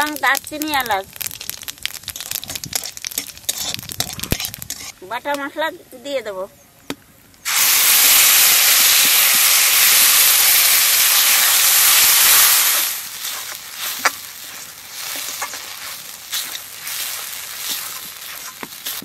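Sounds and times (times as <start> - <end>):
paste sizzling in hot oil: 0.0 - 5.3, 7.4 - 19.0
spatula scraping and knocking pan: 1.4 - 5.0, 13.2 - 19.0.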